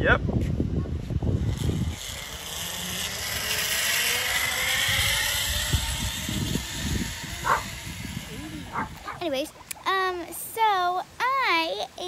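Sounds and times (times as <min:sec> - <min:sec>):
zipline pulley whirring on cable: 0:01.1 - 0:10.1.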